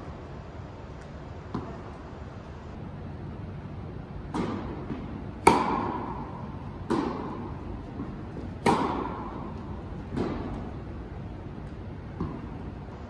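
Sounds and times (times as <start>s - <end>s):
tennis ball struck by rackets: 1.5s - 1.9s, 4.2s - 12.9s.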